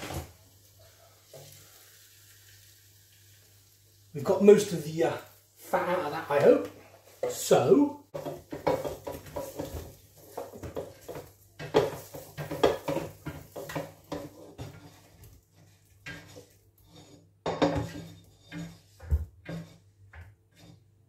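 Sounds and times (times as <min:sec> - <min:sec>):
wooden spoon scraping basket: 0:05.8 - 0:20.9.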